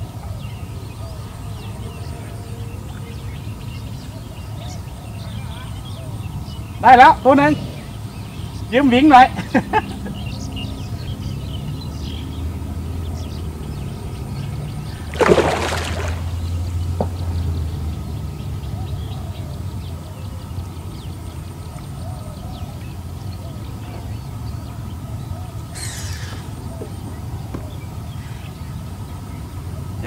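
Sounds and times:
small water sounds: 0:13.6 - 0:18.2
fish splashing at water surface: 0:14.8 - 0:16.9.

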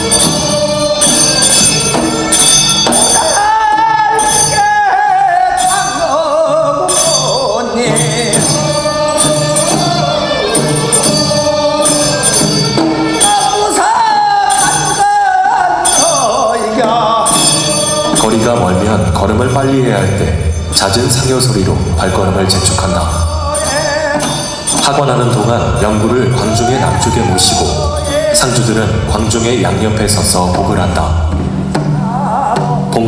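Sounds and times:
men singing a slow song: 0:00.0 - 0:19.9, 0:20.8 - 0:30.6
small bell ringing: 0:00.0 - 0:29.5
lead voice holding long notes: 0:00.0 - 0:31.4.

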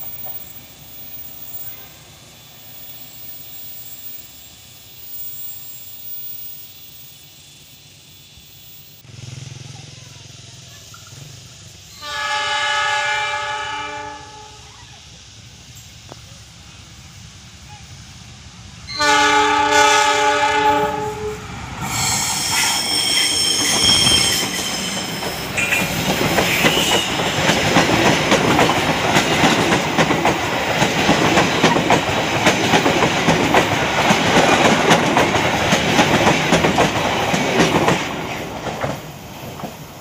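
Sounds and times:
train wheels rumbling and clacking: 0:00.0 - 0:01.9, 0:14.7 - 0:40.0
diesel locomotive horn: 0:11.9 - 0:14.7, 0:18.9 - 0:22.1, 0:23.2 - 0:27.4
higher-pitched horn blast: 0:12.0 - 0:14.7, 0:18.9 - 0:22.1.

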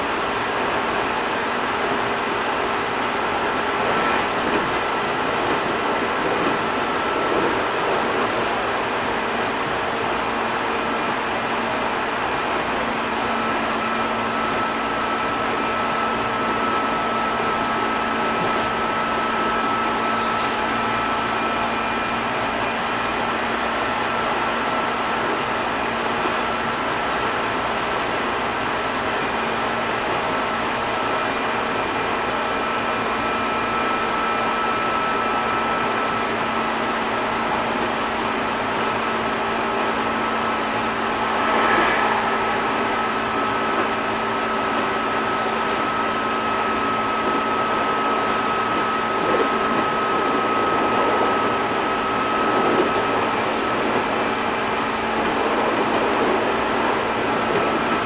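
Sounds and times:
train wheels rumbling on rails: 0:00.0 - 0:58.0
train motor whine: 0:39.1 - 0:58.0.

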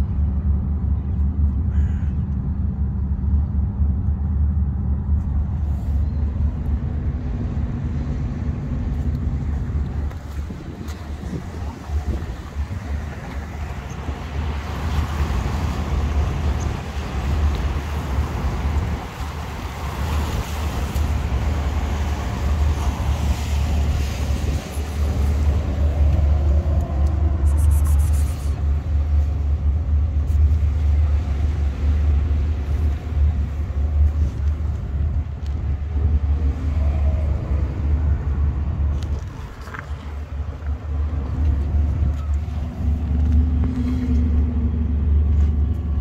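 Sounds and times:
wind buffeting microphone: 0:00.0 - 0:46.0.

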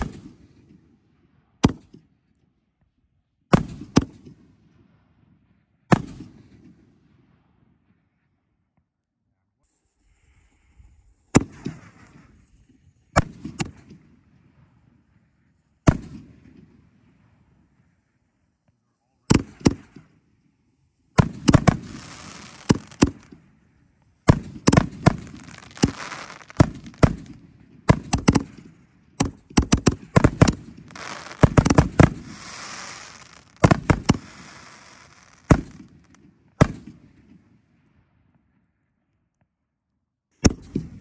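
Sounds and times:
firework crackling hiss: 0:21.2 - 0:23.4, 0:24.3 - 0:27.4, 0:30.1 - 0:36.2
firework booms: 0:21.2 - 0:23.5, 0:24.2 - 0:37.0.

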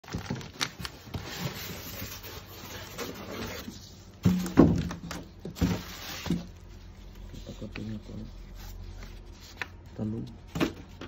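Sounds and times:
cardboard rubbing and scraping: 0:01.0 - 0:04.1, 0:05.6 - 0:09.8.

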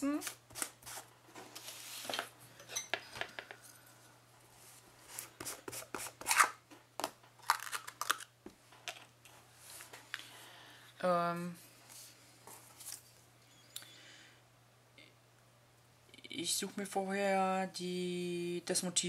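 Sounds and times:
plastic jar opening: 0:05.4 - 0:08.3.

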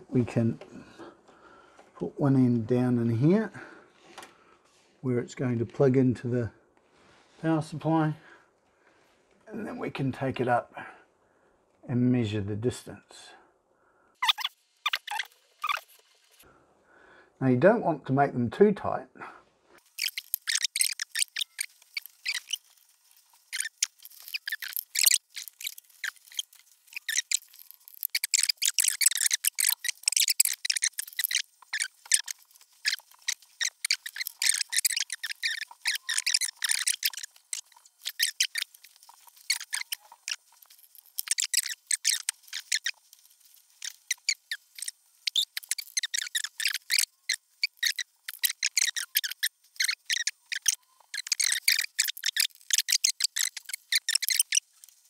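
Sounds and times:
scratches and rustles of handling: 0:19.8 - 0:55.0
faint squeak: 0:20.0 - 0:43.0, 0:43.8 - 0:54.9.

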